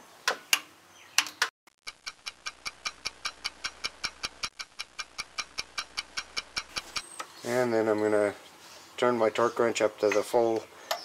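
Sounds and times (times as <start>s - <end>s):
clock-like ticking: 1.8s - 7.0s.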